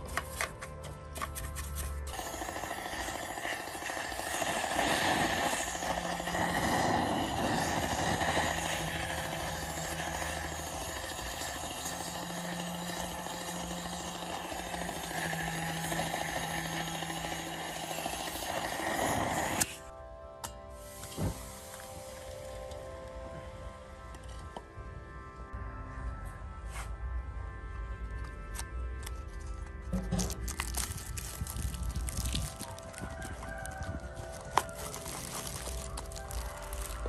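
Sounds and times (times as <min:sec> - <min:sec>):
blowtorch flame hissing: 0:02.1 - 0:19.9, 0:20.8 - 0:22.8, 0:30.4 - 0:37.0.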